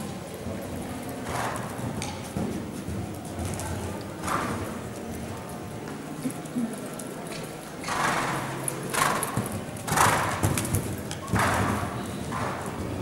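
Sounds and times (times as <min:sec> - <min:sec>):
horse hooves thudding on sand: 0:01.0 - 0:04.9, 0:09.0 - 0:13.0.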